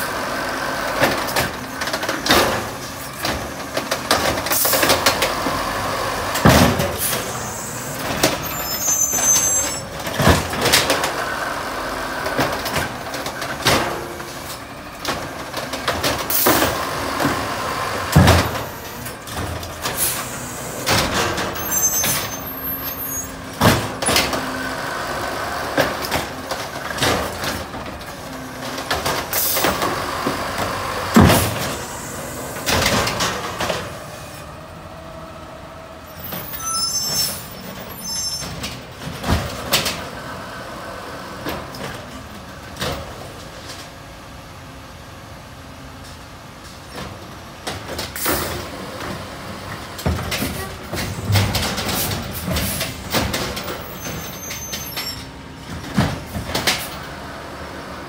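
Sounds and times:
garbage truck engine and hydraulics: 0:00.0 - 0:58.0
trash carts banging: 0:00.5 - 0:35.0, 0:46.9 - 0:57.7
high squeaks: 0:07.1 - 0:10.0, 0:21.4 - 0:23.4, 0:36.2 - 0:38.6.

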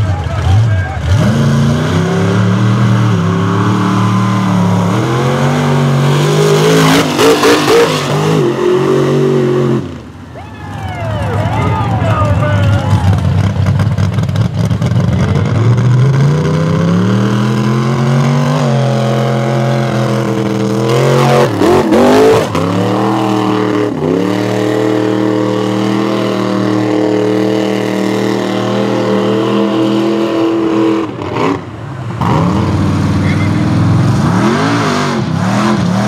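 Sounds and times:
truck engine at high revs: 0:00.0 - 0:36.0.

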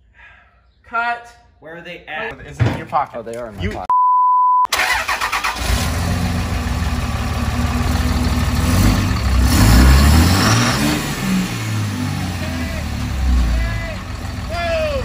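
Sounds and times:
censor bleep: 0:03.9 - 0:04.7
truck engine cranking and revving: 0:04.7 - 0:15.0.

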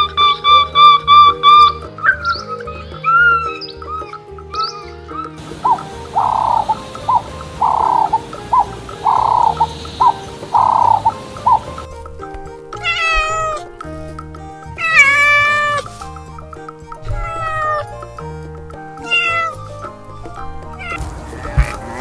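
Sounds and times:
soft background music: 0:00.0 - 0:22.0
cat meowing: 0:12.8 - 0:13.6, 0:14.8 - 0:15.9, 0:17.1 - 0:17.9, 0:19.0 - 0:19.6, 0:20.8 - 0:22.0.

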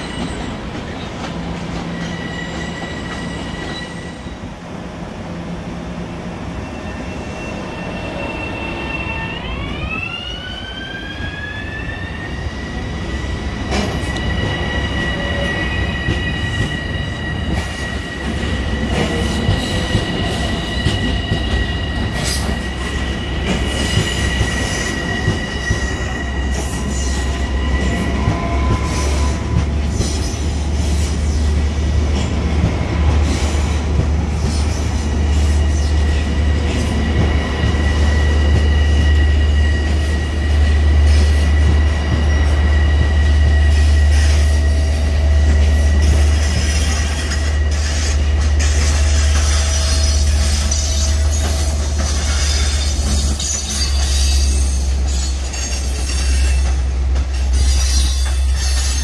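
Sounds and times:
train wheels squealing: 0:00.0 - 0:04.5, 0:06.5 - 0:32.4, 0:33.2 - 0:59.0
low rumble of train: 0:00.0 - 0:59.0.

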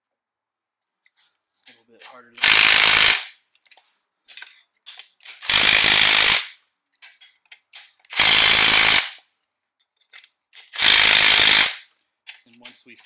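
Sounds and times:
impact wrench hammering: 0:02.4 - 0:03.4, 0:04.9 - 0:09.2, 0:10.5 - 0:12.4.

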